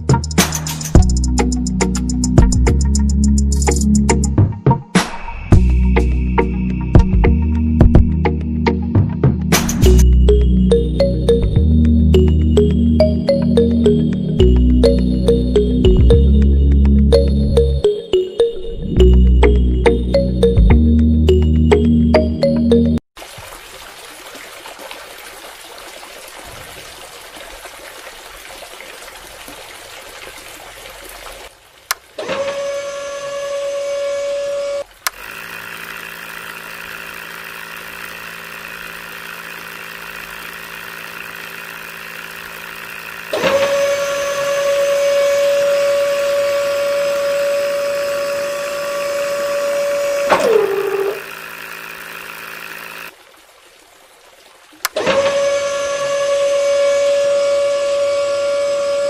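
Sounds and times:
high motor whine: 0:32.3 - 0:53.1, 0:55.0 - 0:59.0.

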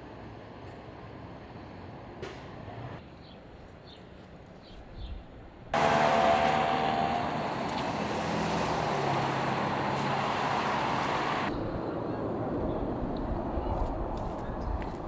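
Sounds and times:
street traffic: 0:00.0 - 0:15.0
car passing close by: 0:05.8 - 0:11.5.

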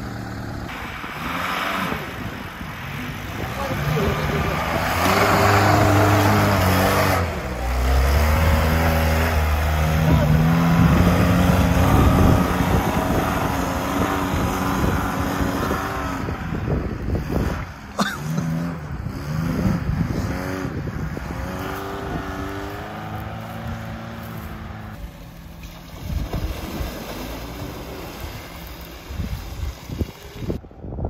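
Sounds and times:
off-road vehicle engine revving: 0:00.0 - 0:30.6
water splashing: 0:24.9 - 0:30.6.

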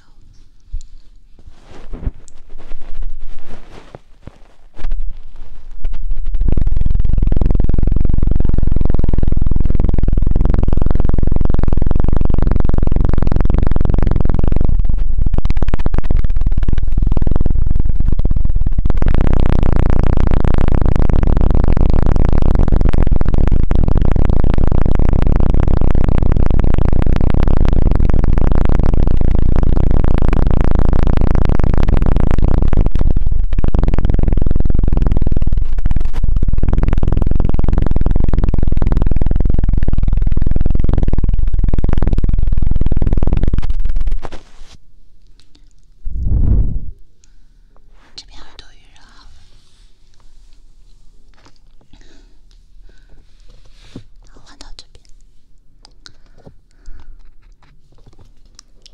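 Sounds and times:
hands patting microphone: 0:00.3 - 0:06.7.

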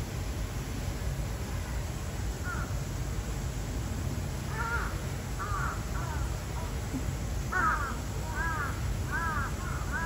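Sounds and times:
crows cawing: 0:02.4 - 0:02.7, 0:04.5 - 0:06.3, 0:07.5 - 0:10.0.

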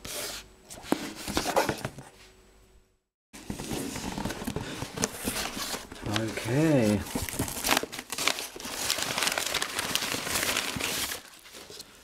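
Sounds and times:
packing paper rustling: 0:03.4 - 0:12.0.

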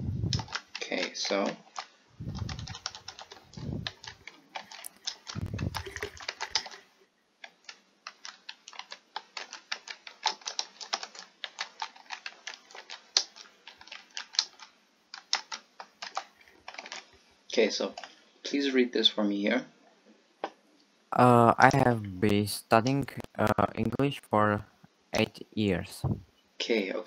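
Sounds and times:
dull low thumps: 0:00.0 - 0:00.4
keyboard typing: 0:00.2 - 0:00.8, 0:01.6 - 0:17.1, 0:21.7 - 0:24.6.

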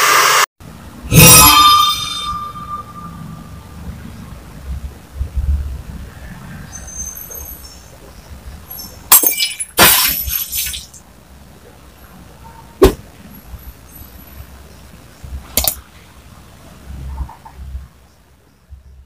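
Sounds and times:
loud crash: 0:01.1 - 0:03.5
sharp click: 0:15.6 - 0:15.8.

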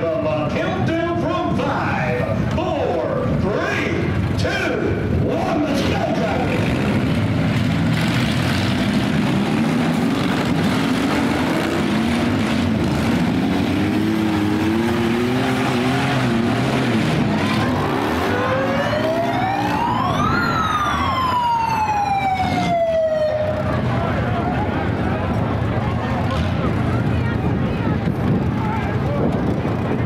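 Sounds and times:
car engines revving: 0:00.0 - 0:30.0
siren winding up: 0:18.2 - 0:23.4.

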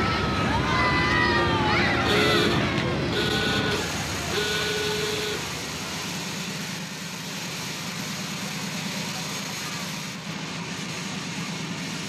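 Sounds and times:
horn-like tone: 0:02.0 - 0:05.5.

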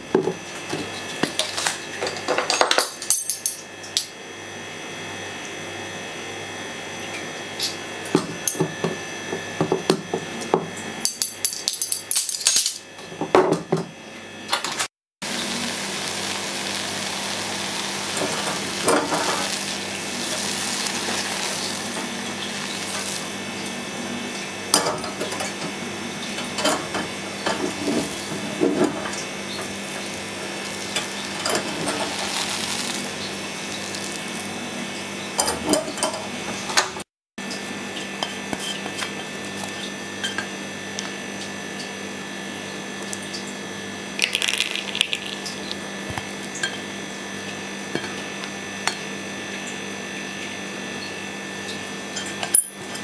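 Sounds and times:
sauce bubbling in a pan: 0:15.2 - 0:23.8, 0:29.8 - 0:34.4.

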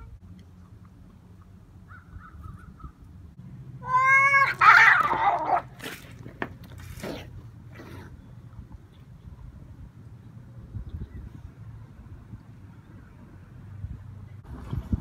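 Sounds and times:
cat crying: 0:03.8 - 0:05.7
cat yowling: 0:03.8 - 0:05.7.

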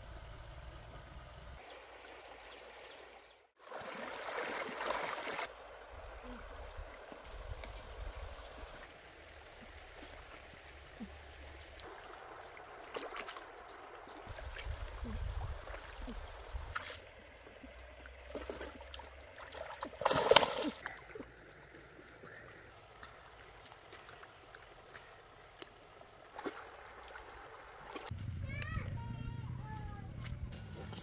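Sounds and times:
stream water sloshing and trickling: 0:01.6 - 0:28.2
small splashes: 0:03.6 - 0:28.1
loud splash: 0:19.5 - 0:20.8.

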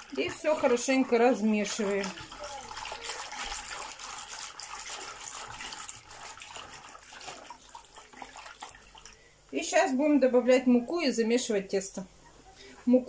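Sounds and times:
hand swishing water in basin: 0:00.0 - 0:09.2.

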